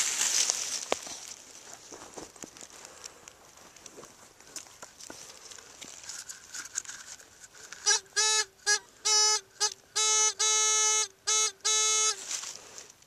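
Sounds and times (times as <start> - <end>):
rustling of soil and leaves: 0.0 - 9.1, 11.7 - 13.0
pinpointer probe buzzy tone pulses: 7.8 - 12.2.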